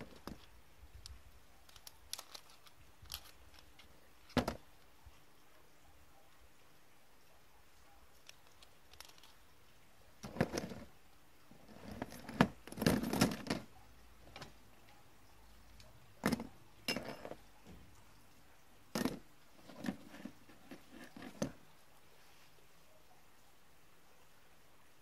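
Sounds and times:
plastic connectors clicking and clattering: 0.0 - 4.7, 8.2 - 9.4
connectors set down on cardboard: 4.3 - 4.6, 16.2 - 17.4, 19.0 - 21.6.

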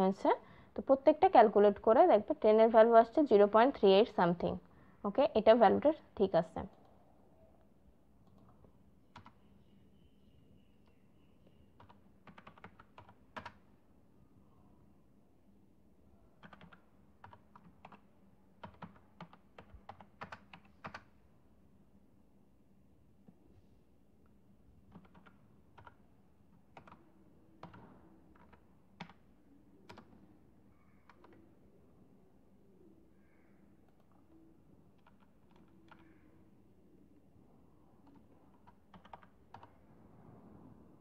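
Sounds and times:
computer keyboard typing: 8.2 - 9.4, 11.8 - 13.7, 16.4 - 21.2, 24.9 - 26.0, 26.6 - 29.2, 29.8 - 30.2, 31.0 - 31.4, 33.8 - 34.3, 35.0 - 36.2, 38.0 - 39.8.

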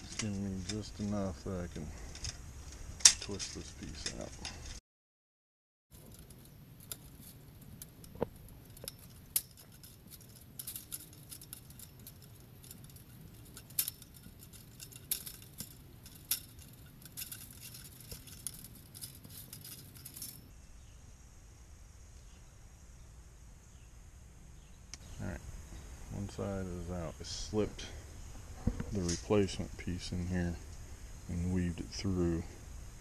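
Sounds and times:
chain-link fence wire clinking: 0.0 - 2.4, 3.0 - 4.8, 5.9 - 20.5.

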